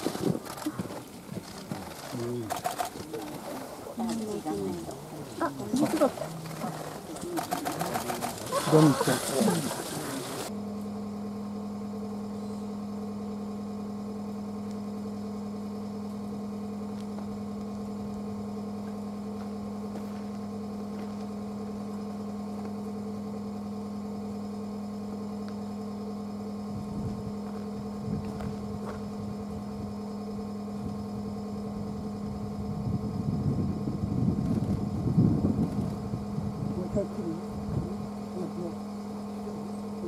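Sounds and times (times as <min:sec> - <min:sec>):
soft low rumbles: 0:24.4 - 0:40.0.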